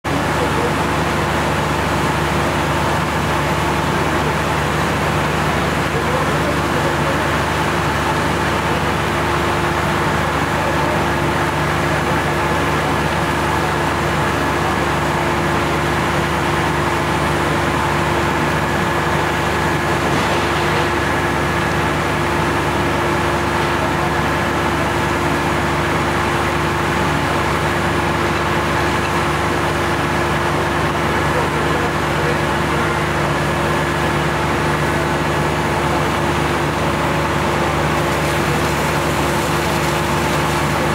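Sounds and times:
pump motor droning: 0.1 - 40.9
water jets hissing: 37.9 - 40.9.

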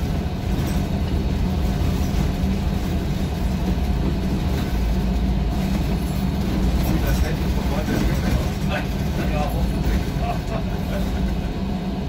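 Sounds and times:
bus engine and road noise: 0.0 - 12.0.

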